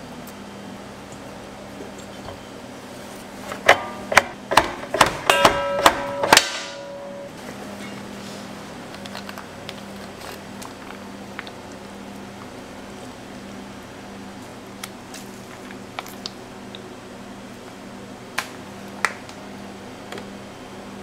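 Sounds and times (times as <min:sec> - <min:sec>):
steady low hum: 0:00.0 - 0:21.0
sharp metal clacks: 0:03.7 - 0:07.3.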